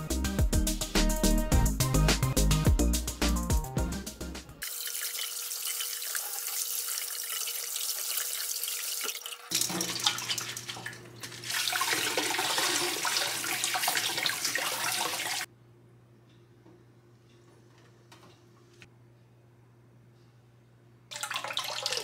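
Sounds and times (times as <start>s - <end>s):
faucet spray running: 4.6s - 15.5s
wet leaves splashing in colander: 4.7s - 15.5s.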